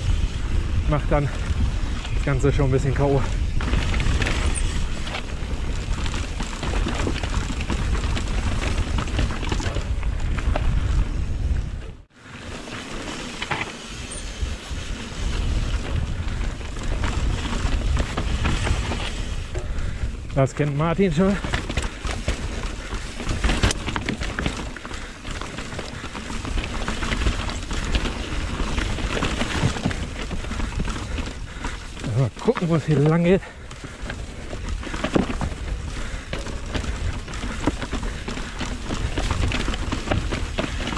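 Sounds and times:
wind on microphone: 0.0s - 12.1s, 14.2s - 20.4s
bike rattles and clicks: 0.0s - 40.9s
tyre rumble on trail: 0.0s - 40.9s.

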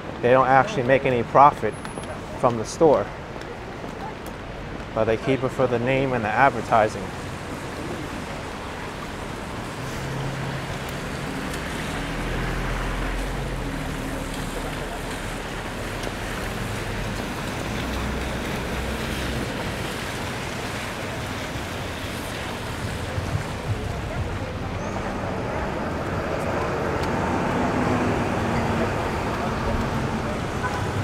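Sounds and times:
tyres hissing on wet pavement: 3.3s - 31.0s
passing car engines humming: 7.1s - 31.0s.

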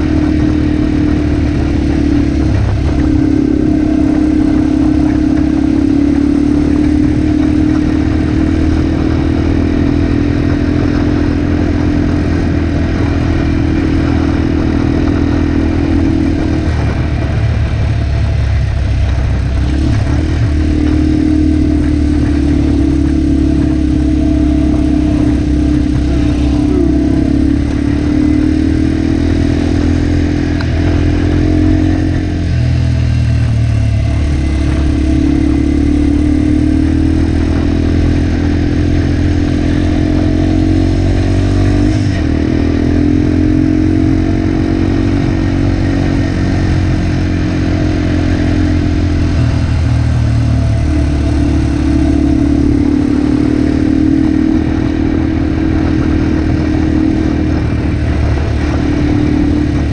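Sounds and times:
motorcycle engine running: 0.0s - 59.9s.

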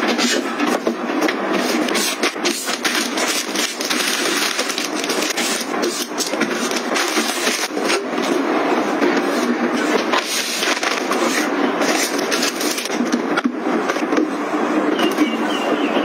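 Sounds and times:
items knocking and clicking: 0.0s - 8.3s
plastic packets crinkling: 2.1s - 7.9s.

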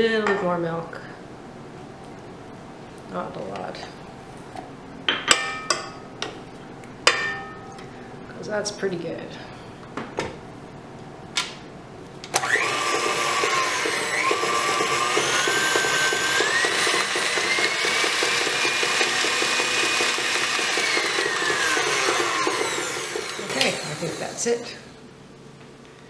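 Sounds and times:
stand mixer motor whine: 12.4s - 24.6s.

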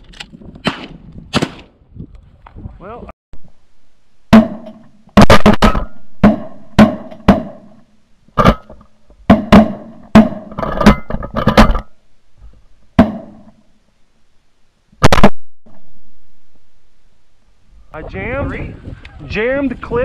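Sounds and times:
shotgun shots: 0.6s - 1.7s.

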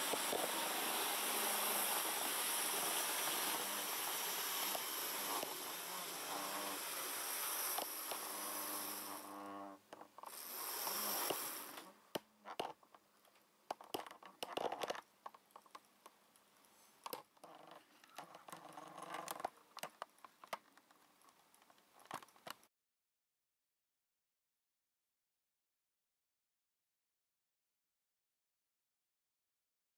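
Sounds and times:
model train motor whirring: 0.0s - 12.0s, 18.0s - 19.5s
camera tripod squeaking: 17.4s - 19.5s.

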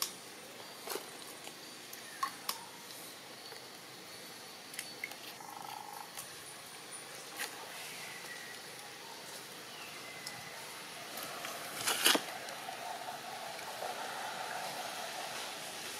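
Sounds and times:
faint high hiss: 0.0s - 15.9s.

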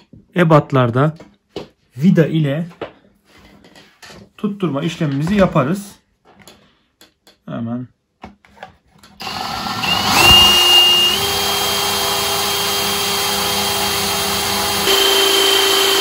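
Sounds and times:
cordless drill motor whine: 9.2s - 16.0s.

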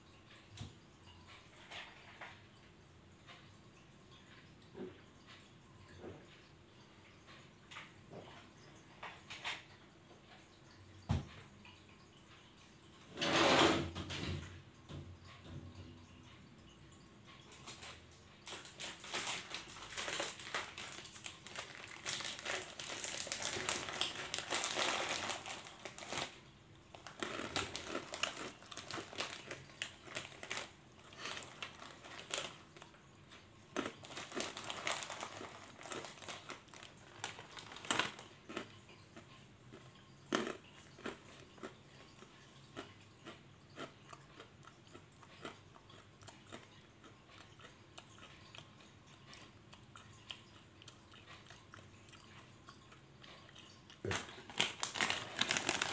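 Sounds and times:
plastic snack packet crinkling: 17.6s - 33.0s, 33.7s - 38.8s, 54.0s - 55.9s.

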